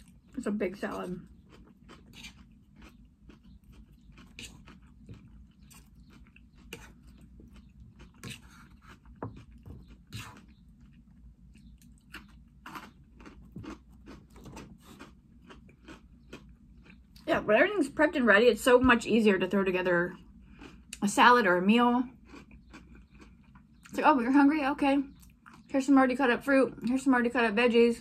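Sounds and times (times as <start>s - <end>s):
person chewing crisp salad: 0.0s - 17.3s, 20.1s - 21.1s, 22.1s - 23.9s, 25.1s - 25.7s.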